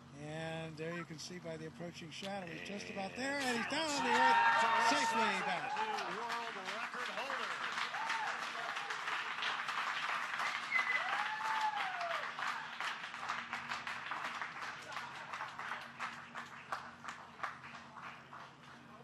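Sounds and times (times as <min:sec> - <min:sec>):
crowd applauding and cheering: 0:03.2 - 0:19.0
whooping shouts: 0:03.4 - 0:06.2, 0:07.9 - 0:09.0, 0:10.7 - 0:12.3.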